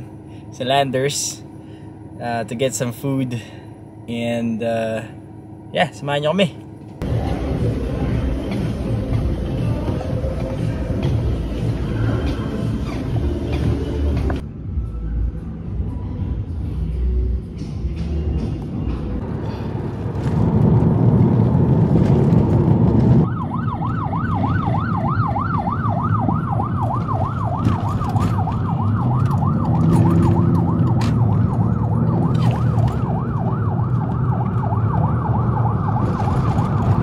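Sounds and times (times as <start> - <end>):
traffic and engine rumble: 0.0 - 37.0
siren yelping: 23.2 - 37.0.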